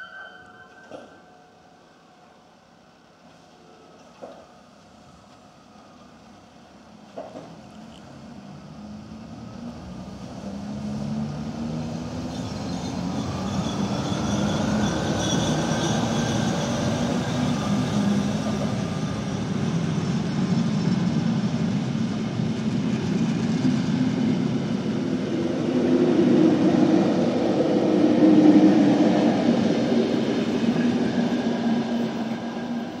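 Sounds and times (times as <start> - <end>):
electric locomotive humming whine: 0.0 - 33.0
train wheels rolling on rails: 7.0 - 8.2.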